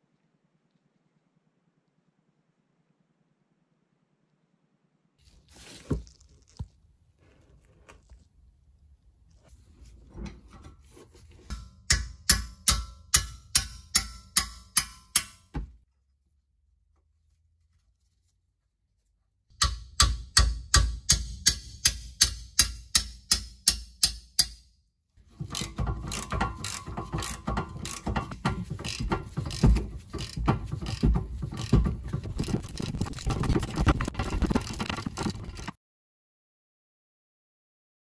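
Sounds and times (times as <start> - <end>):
ratchet clicking: 25.5 - 31.8.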